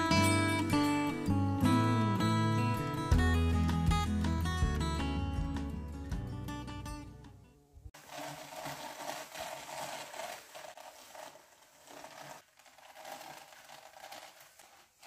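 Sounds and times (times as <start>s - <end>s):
drum carder scratching wool: 8.0s - 15.0s.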